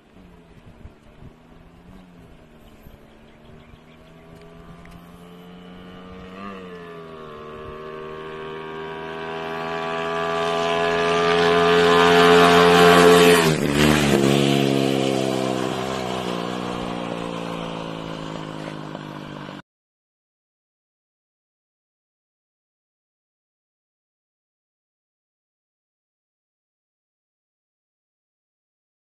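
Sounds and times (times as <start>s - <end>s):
motorcycle riding past at speed: 0.2s - 19.6s.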